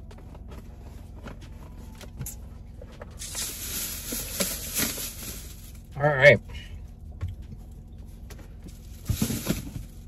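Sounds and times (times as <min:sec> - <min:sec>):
packaging crinkling: 0:03.2 - 0:05.8.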